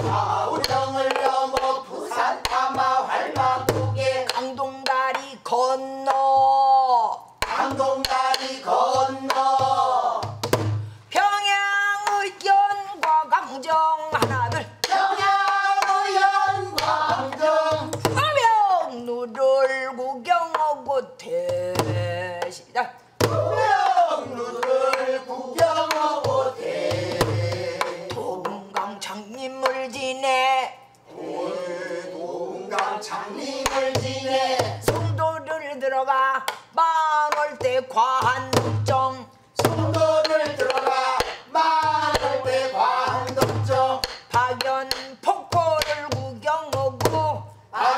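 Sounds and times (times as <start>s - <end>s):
voices singing together: 0.0s - 10.5s, 14.2s - 20.0s, 23.2s - 35.9s, 39.6s - 46.3s, 47.2s - 47.9s.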